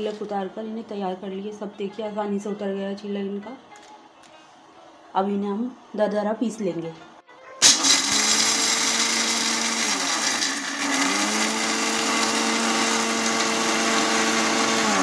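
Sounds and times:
mixer grinder grinding peanuts: 7.6 - 15.0.

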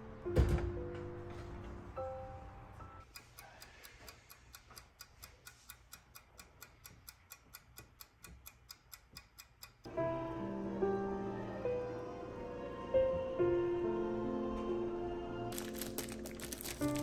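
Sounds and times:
kitchen timer ticking: 3.0 - 9.9.

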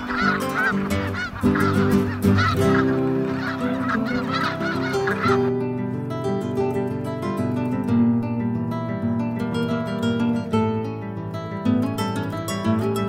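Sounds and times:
geese honking: 0.0 - 5.6.

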